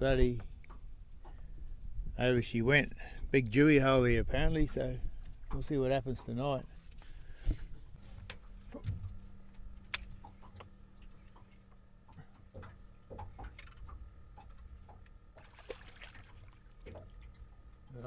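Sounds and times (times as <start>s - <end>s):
faint low hum: 0.0s - 18.0s
light clicks and knocks: 8.0s - 15.5s.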